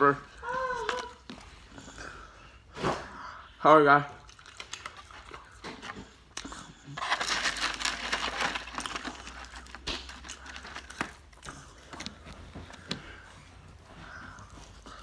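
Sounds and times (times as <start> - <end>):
foam container crinkling: 4.4 - 12.4.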